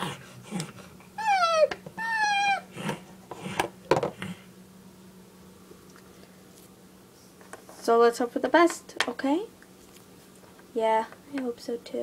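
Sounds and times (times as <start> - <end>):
child squealing: 1.2 - 2.7.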